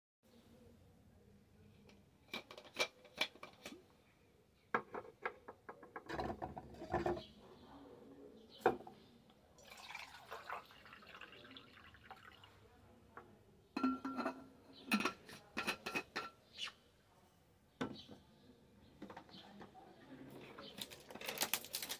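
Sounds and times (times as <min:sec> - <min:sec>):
water pouring into mug: 0:09.6 - 0:12.6.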